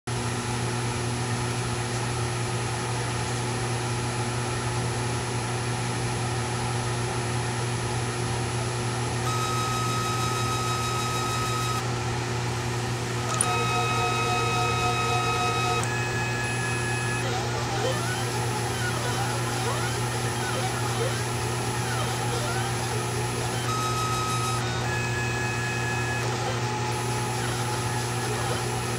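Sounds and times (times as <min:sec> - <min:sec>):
stepper motors whining: 0:09.2 - 0:11.9, 0:13.2 - 0:28.9
machine hum: 0:09.2 - 0:28.9.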